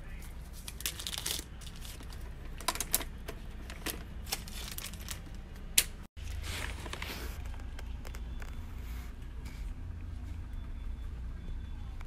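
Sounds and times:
plastic bag rustling: 0.4s - 5.4s, 6.2s - 7.6s.

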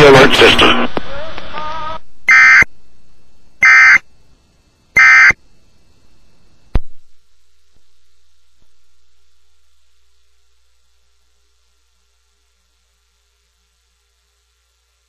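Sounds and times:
digital data tone bursts: 3.6s - 4.0s, 5.0s - 5.4s.

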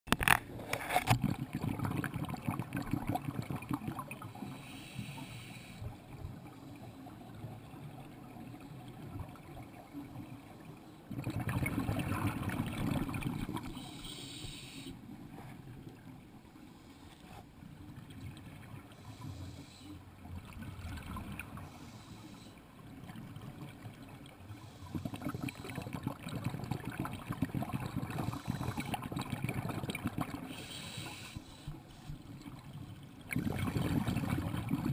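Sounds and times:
diver's bubbles gurgling underwater: 1.1s - 4.3s, 11.1s - 13.8s, 24.9s - 30.5s, 32.4s - 34.9s.

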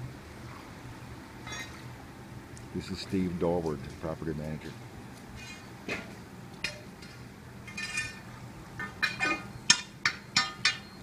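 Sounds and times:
pole clinking against grate: 5.4s - 11.0s.

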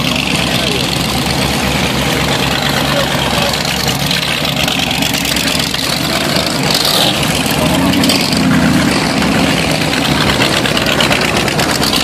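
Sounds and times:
motorcycles passing slowly: 0.0s - 12.0s.

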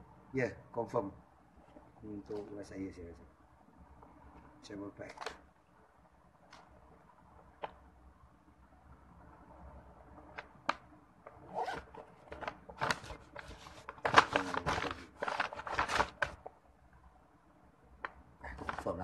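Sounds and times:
rustling of pouch and paper bag: 11.4s - 16.5s, 18.5s - 19.0s.

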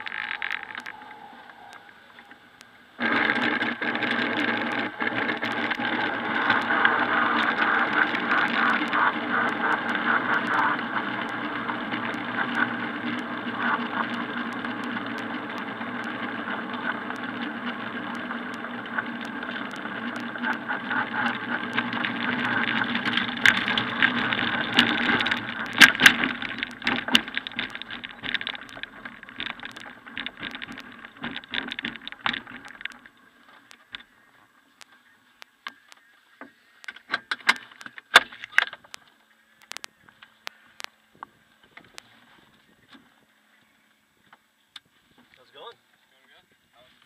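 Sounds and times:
airframe rattling: 0.0s - 34.2s
glider wheel rumbling over ground: 0.0s - 35.9s.

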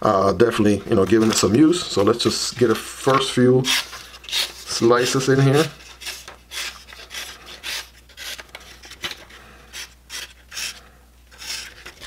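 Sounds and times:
knife slicing paper: 3.6s - 12.0s.

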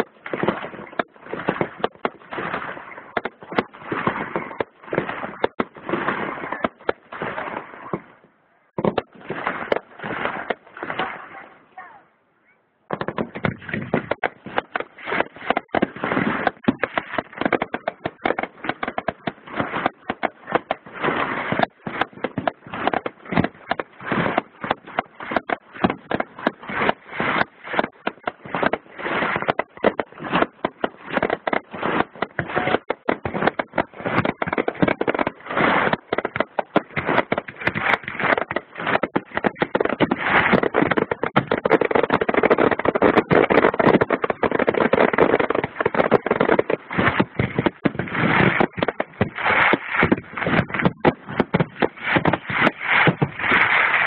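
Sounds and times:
fireworks cracking and banging: 0.0s - 12.0s, 12.8s - 54.0s.

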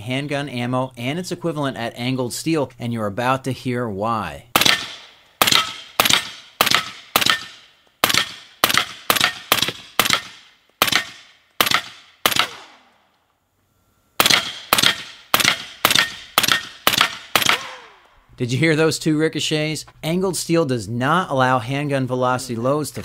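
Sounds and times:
rapid rifle fire: 4.6s - 12.8s, 14.2s - 18.0s
ricochet whine: 4.6s - 13.1s, 14.2s - 18.2s.

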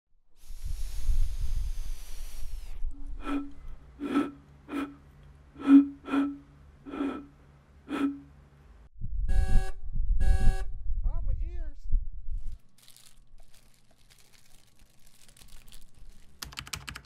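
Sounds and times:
hiss: 0.4s - 3.4s
bamboo flute toots: 2.0s - 8.4s
car horn honking: 5.6s - 8.4s.

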